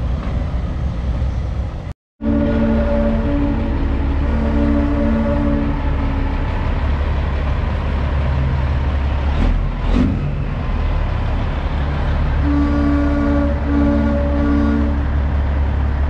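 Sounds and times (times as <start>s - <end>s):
diesel truck engines rumbling: 0.0s - 16.0s
truck air horn chord: 2.2s - 6.4s, 12.4s - 15.1s.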